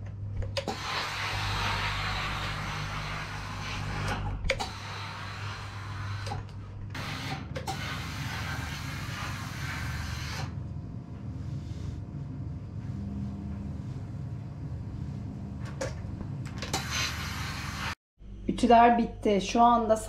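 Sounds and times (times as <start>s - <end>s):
steam iron humming: 0.6s - 10.6s, 16.6s - 18.0s.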